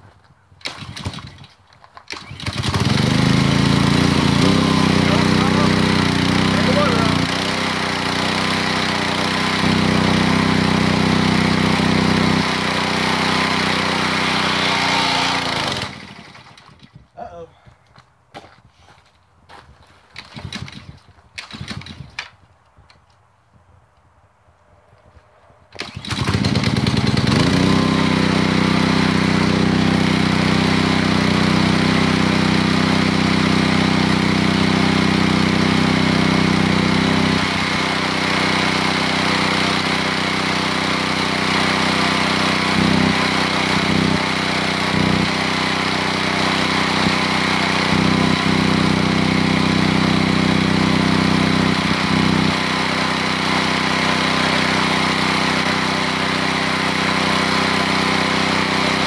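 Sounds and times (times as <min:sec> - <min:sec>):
recoil cord pull: 0:00.6 - 0:03.0, 0:20.2 - 0:22.4
pressure washer engine running: 0:02.1 - 0:16.8, 0:25.8 - 0:59.0.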